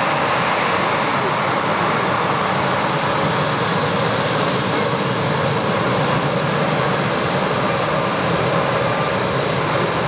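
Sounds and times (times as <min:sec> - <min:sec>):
jet engines whining: 0:00.0 - 0:10.0.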